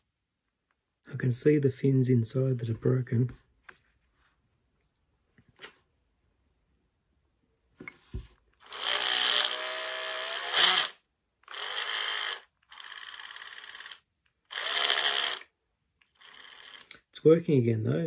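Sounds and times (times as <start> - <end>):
cordless drill motor running: 8.6 - 15.5, 16.2 - 16.9.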